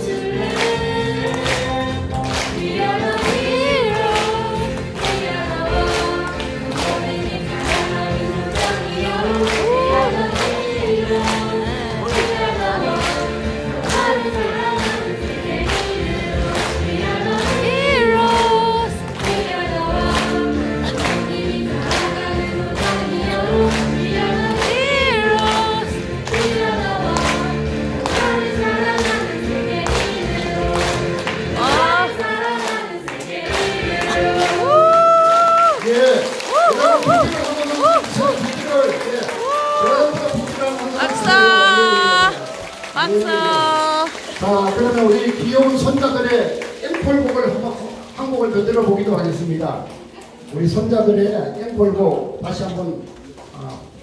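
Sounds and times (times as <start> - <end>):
youth choir singing: 0.0 - 36.0.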